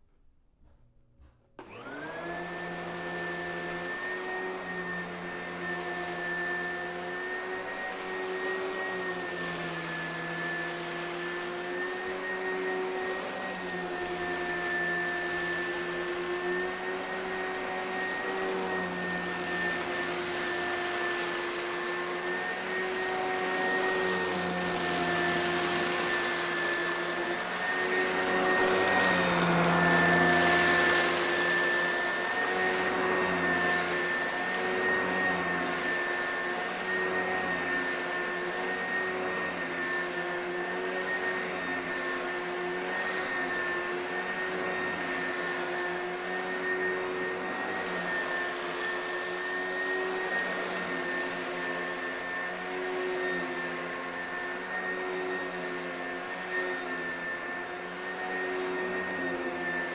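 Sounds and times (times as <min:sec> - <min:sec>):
vacuum cleaner motor whine: 0:01.2 - 0:59.9
grains being sucked up: 0:02.1 - 0:39.9.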